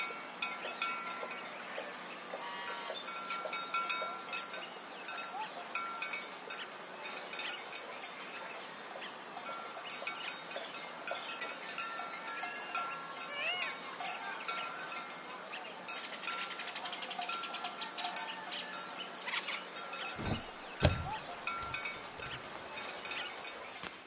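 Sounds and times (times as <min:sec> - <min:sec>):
livestock bells jingling: 0:00.0 - 0:24.0.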